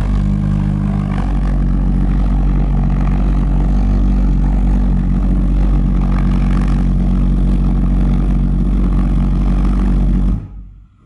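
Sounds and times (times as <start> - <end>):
pulsejet engine buzzing: 0.0 - 11.0.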